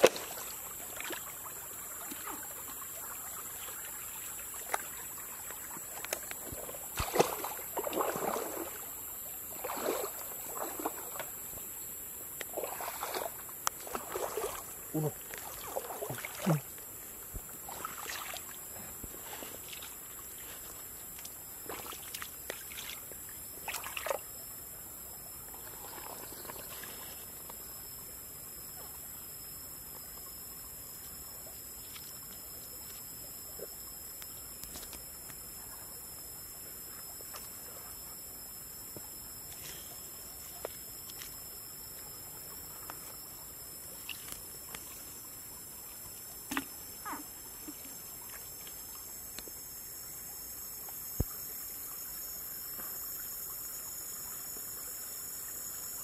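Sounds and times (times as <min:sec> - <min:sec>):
small water splashes: 0:00.0 - 0:11.5, 0:12.4 - 0:24.4, 0:25.6 - 0:27.1, 0:39.4 - 0:50.3.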